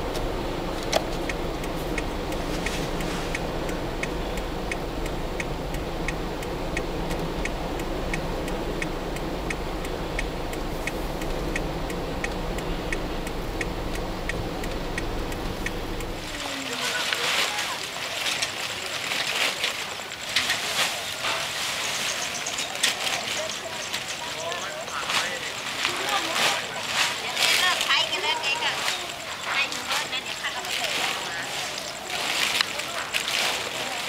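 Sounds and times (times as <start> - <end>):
flasher relay ticking: 0.0 - 17.0
vehicle driving through water: 0.0 - 27.9.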